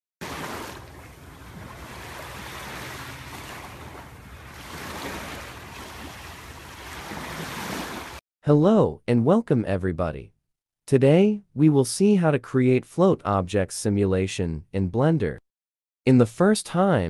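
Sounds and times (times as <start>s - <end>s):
ocean waves washing: 0.2s - 8.2s.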